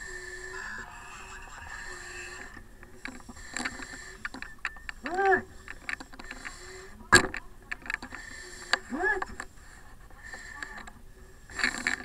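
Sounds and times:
air supply hissing: 0.0 - 4.4
breathing through a mask: 0.0 - 7.0, 7.9 - 12.0.

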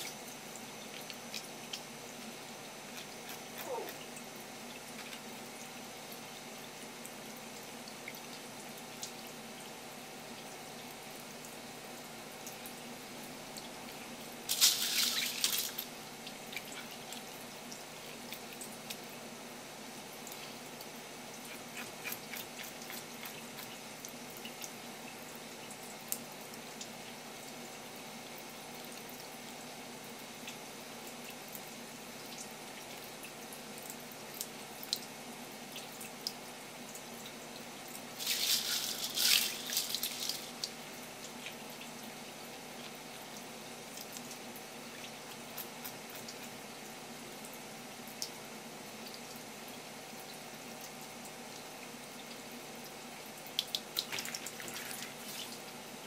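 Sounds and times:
water drips: 0.0 - 9.7
tap water running: 0.0 - 19.2, 32.2 - 48.3, 53.5 - 56.0.

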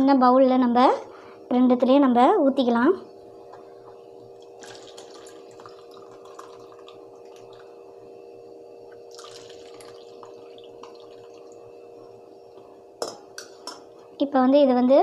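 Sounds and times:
liquid trickling and dripping: 4.4 - 8.0, 8.9 - 12.2.

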